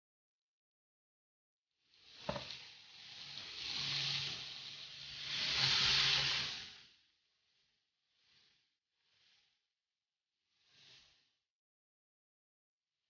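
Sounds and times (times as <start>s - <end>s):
potatoes sizzling in frying pan: 2.0s - 6.7s.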